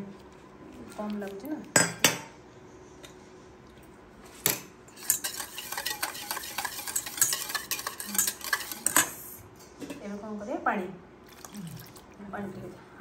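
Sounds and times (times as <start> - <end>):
whisk clicking against metal bowl: 5.0 - 9.1.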